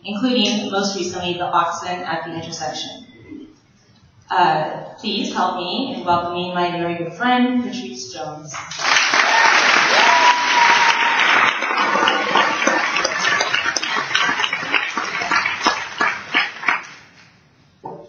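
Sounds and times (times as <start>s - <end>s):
audience applauding: 8.6s - 17.2s.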